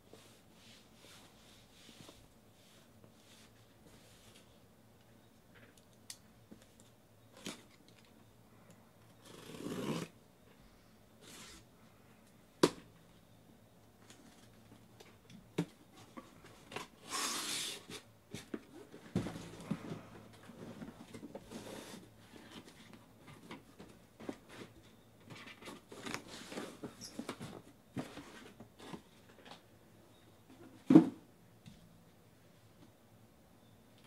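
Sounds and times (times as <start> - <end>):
box knocking and rustling: 18.3 - 20.0.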